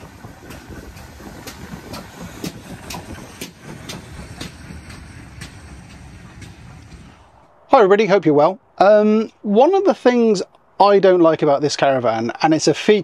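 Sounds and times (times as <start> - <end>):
train wheels clacking on rails: 0.0 - 7.4.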